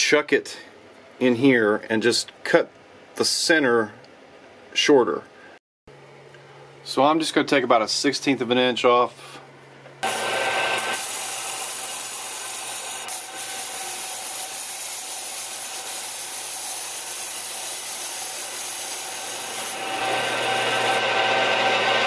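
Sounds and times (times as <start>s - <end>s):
lathe cutting metal: 10.0s - 22.0s
machine hum: 19.6s - 22.0s.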